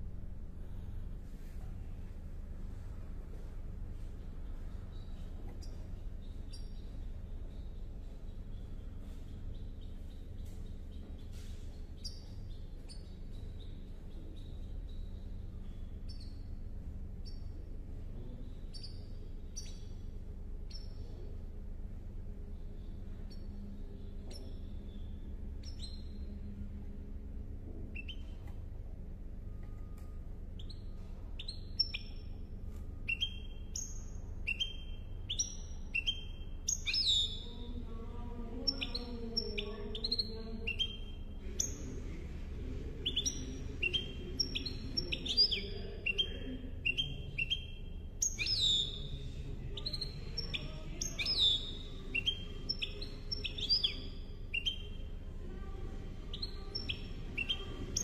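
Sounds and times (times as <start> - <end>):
steady low hum: 0.0 - 58.0
finch singing: 4.0 - 21.4, 22.5 - 26.4, 27.7 - 28.7, 29.4 - 58.0.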